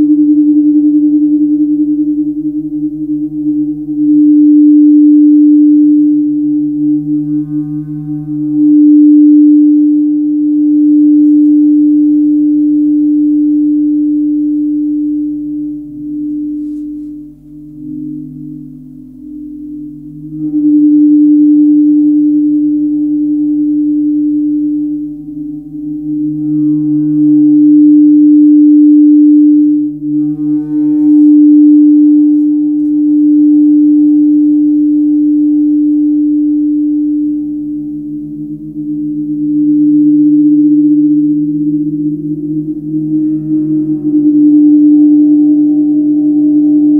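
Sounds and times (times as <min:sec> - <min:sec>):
gong humming from friction mallet: 0:00.0 - 0:46.9
large gong ringing: 0:06.5 - 0:11.4, 0:26.4 - 0:33.8.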